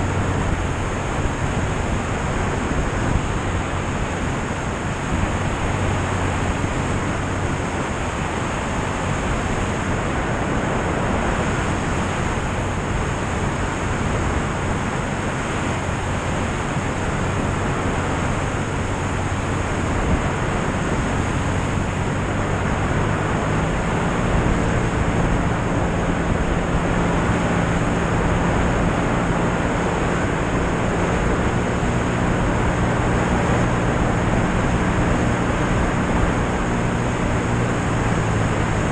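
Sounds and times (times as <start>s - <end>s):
propeller engine drone: 0.0s - 38.9s
wind rush: 0.0s - 38.9s.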